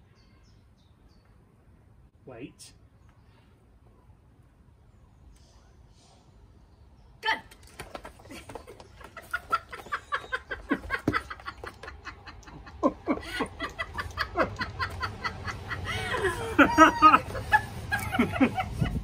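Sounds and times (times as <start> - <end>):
people laughing: 8.2 - 19.0.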